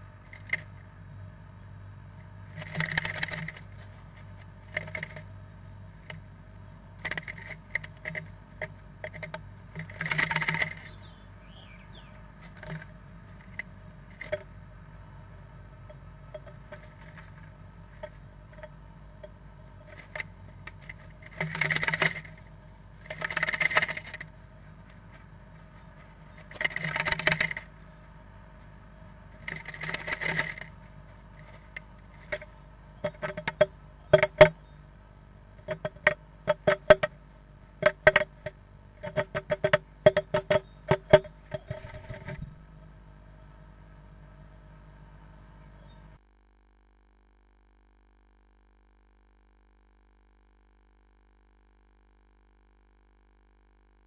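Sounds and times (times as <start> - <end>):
bird scratching inside wooden box: 23.0 - 24.2.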